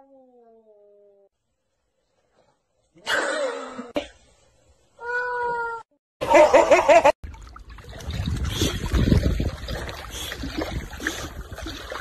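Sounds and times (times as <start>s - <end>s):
water sloshing and splashing: 7.2s - 12.0s.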